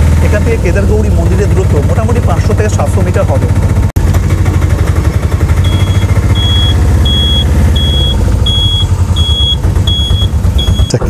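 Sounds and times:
vehicle engine rumbling: 0:00.0 - 0:11.0
high electronic beeps: 0:05.6 - 0:11.0.

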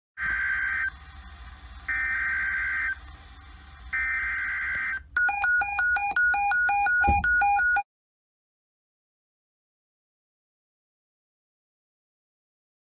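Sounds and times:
two-pitch electronic beeping: 0:04.0 - 0:07.8.

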